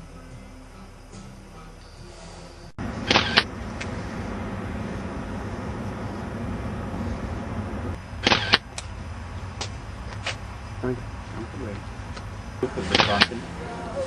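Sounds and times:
low outdoor rumble: 0.0s - 14.0s
sharp clicks: 3.0s - 3.9s, 8.2s - 9.0s, 12.9s - 13.4s.

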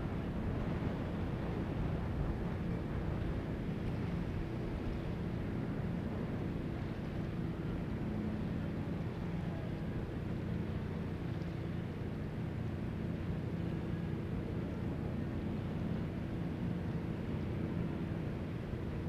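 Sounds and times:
steady rushing noise: 0.0s - 10.3s
ferry engines droning: 0.0s - 19.0s.

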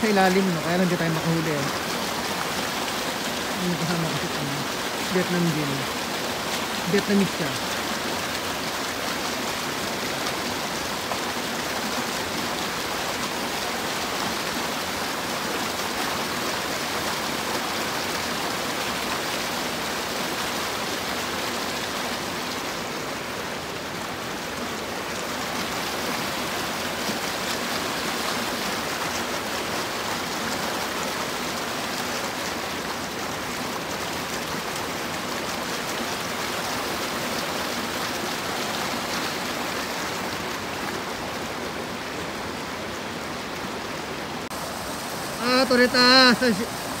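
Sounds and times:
stream rushing over rocks: 0.0s - 47.0s.

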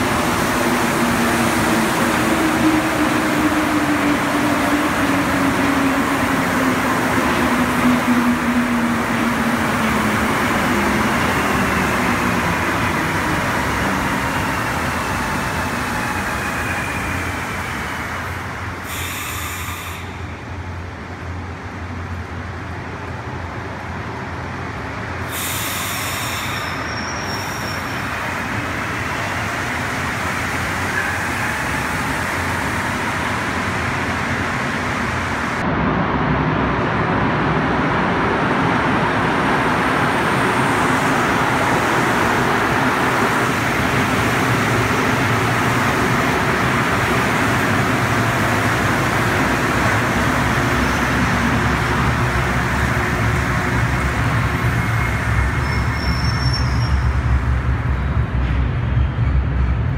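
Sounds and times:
rubber-tyred train rumbling: 0.0s - 59.9s
short bursts of hiss: 18.9s - 20.2s, 25.3s - 26.8s.

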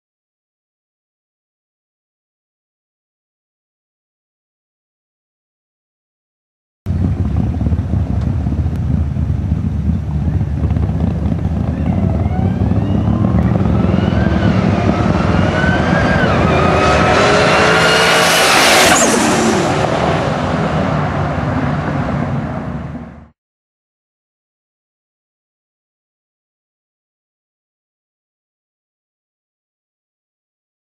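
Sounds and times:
racing car engines revving: 6.9s - 23.3s.

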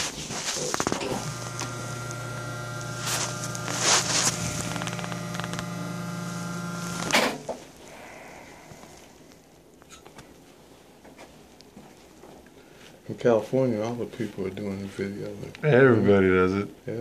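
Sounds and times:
paper drape rustling: 0.0s - 7.4s
steady electrical hum: 0.0s - 17.0s.

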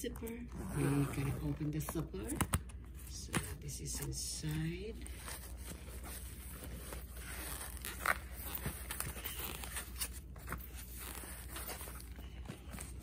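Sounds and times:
hands rummaging in backpack pocket: 5.1s - 13.0s.

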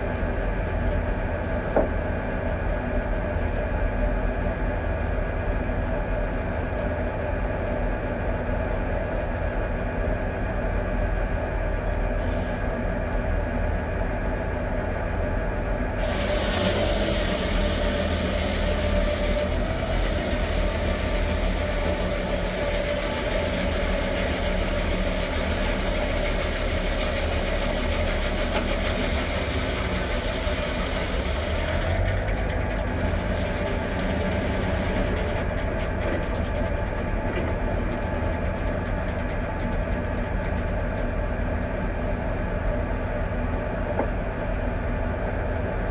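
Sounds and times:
tractor engine running: 15.9s - 45.9s
saw cutting through log: 16.0s - 32.0s.

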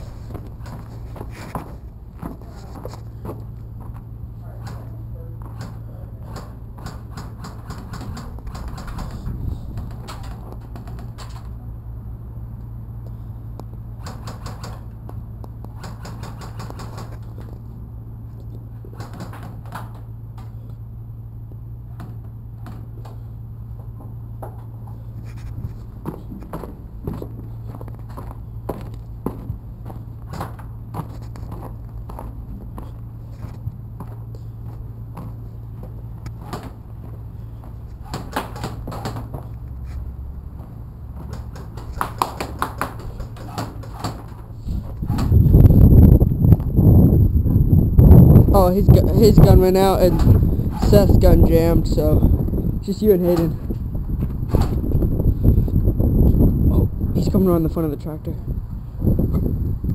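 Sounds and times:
footsteps: 0.0s - 11.1s
steady low hum: 0.0s - 59.9s
airsoft guns firing full auto: 15.8s - 17.2s.

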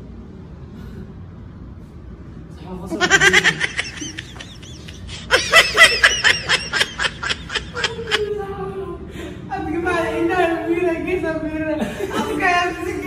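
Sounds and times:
woman laughing: 2.9s - 8.5s
high-pitched giggles: 3.0s - 8.3s.

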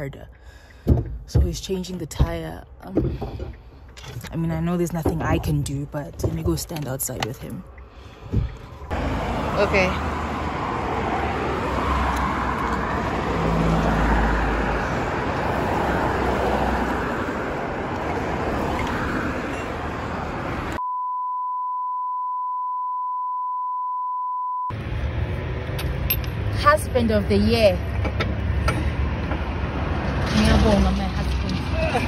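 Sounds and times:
roadside traffic rumble: 0.0s - 20.8s, 24.7s - 32.0s
censor bleep tone: 20.8s - 24.7s.

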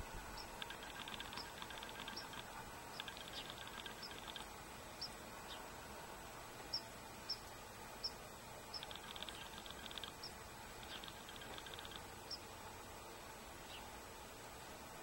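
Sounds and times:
songbirds chipping: 0.1s - 12.7s, 13.6s - 14.0s
rapid bird ticking: 0.3s - 5.6s, 6.7s - 12.5s.

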